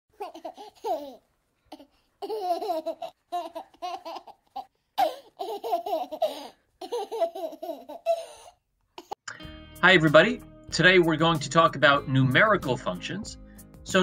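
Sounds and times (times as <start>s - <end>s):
baby laughing and babbling: 0.1s - 9.2s.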